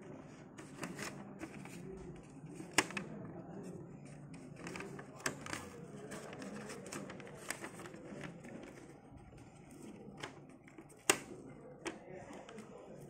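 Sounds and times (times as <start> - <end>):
paper rustling: 0.1 - 12.8
sharp plastic clicks: 10.2 - 12.6.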